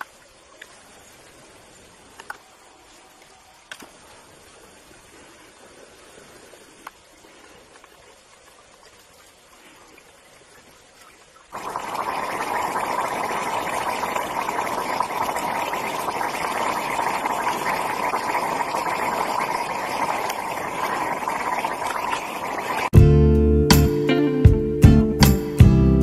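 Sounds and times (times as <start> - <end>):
gas flame hissing rush: 11.6 - 22.9
strummed guitar music: 23.0 - 26.0.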